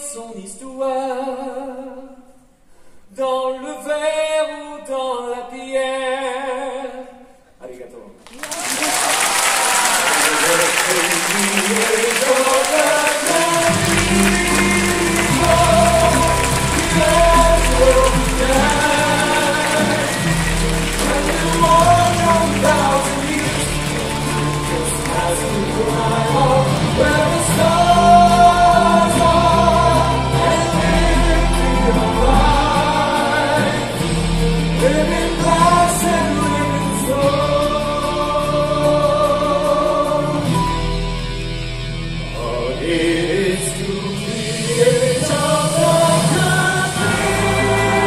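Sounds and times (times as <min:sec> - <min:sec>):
chorus singing: 0:08.7 - 0:40.8, 0:42.2 - 0:48.0
amplified band playing: 0:09.6 - 0:48.0.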